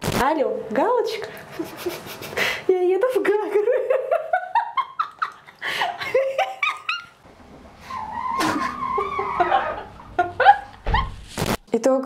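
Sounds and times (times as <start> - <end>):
women laughing: 1.5 - 2.6, 3.5 - 7.2, 8.0 - 11.1.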